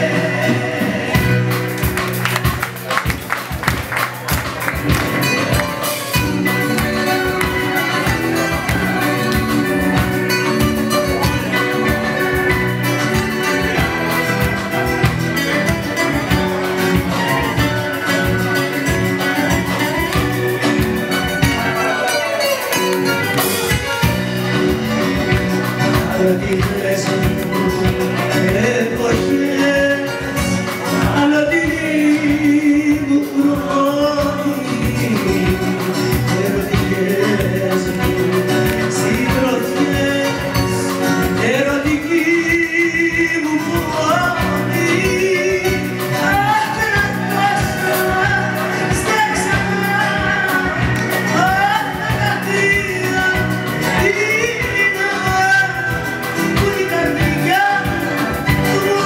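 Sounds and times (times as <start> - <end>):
band with bass and drums: 0.0 - 59.0.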